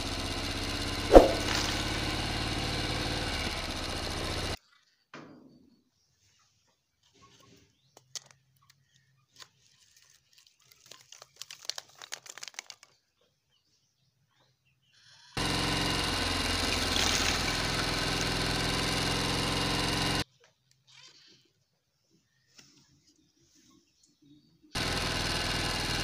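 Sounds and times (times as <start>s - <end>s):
dry sticks clicking and rattling: 10.6s - 12.9s.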